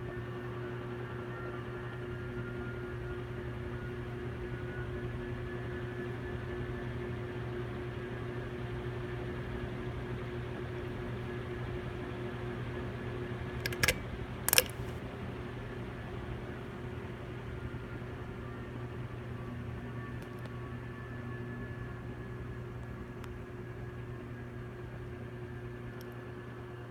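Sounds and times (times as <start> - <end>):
ceiling fan motor humming: 13.2 - 15.1
sharp clicks: 13.6 - 15.0.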